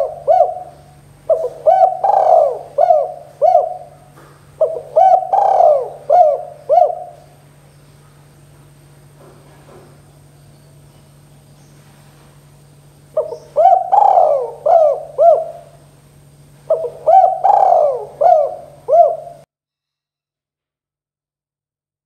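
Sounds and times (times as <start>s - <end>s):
dove cooing: 0.0s - 7.5s, 13.1s - 15.9s, 16.7s - 19.5s.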